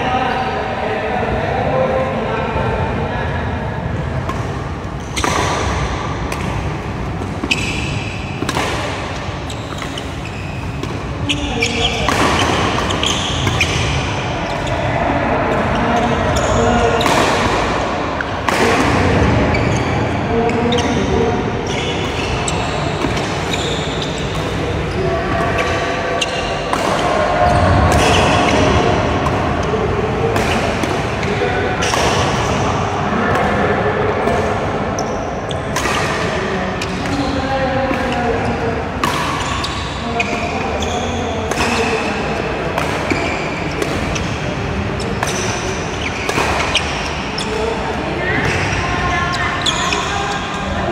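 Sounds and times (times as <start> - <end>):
noisy background: 0.0 - 50.9
shoes squeaking on court floor: 4.8 - 14.9, 15.5 - 17.2, 18.2 - 29.8, 35.0 - 36.2, 39.2 - 42.4, 43.0 - 50.9
racket striking shuttlecock: 5.2 - 14.0, 39.0 - 40.4, 42.7 - 44.4, 45.2 - 47.6
shoe squeaks on wooden floor: 9.4 - 13.8, 21.6 - 24.3.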